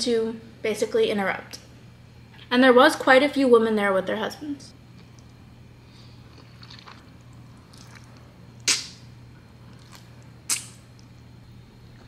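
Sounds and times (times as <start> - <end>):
person slurping noodles: 6.2 - 8.8
mouth sounds: 7.8 - 9.0.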